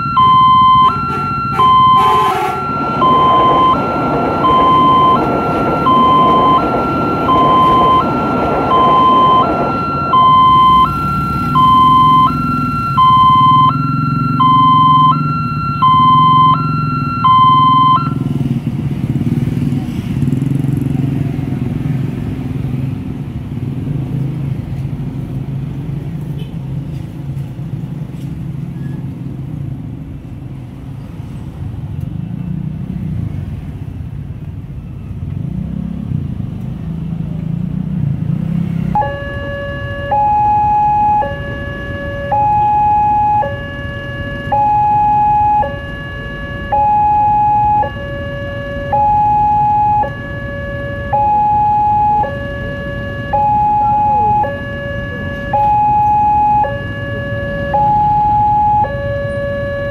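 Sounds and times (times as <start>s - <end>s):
two-tone crossing warning alarm: 0.0s - 19.3s, 38.8s - 59.9s
traffic rumbling over level crossing: 0.0s - 59.9s.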